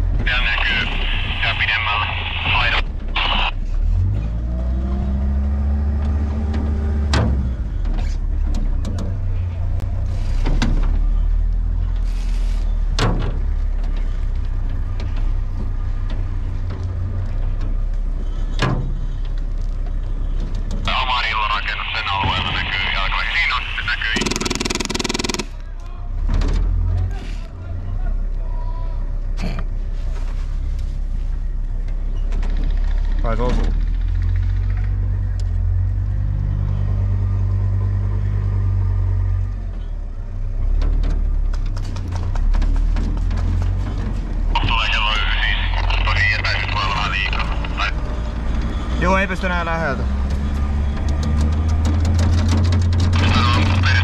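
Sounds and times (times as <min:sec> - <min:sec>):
vehicle engine rumbling: 0:00.0 - 0:54.0
sharp crack: 0:24.0 - 0:25.7
sharp clicks: 0:24.1 - 0:25.7.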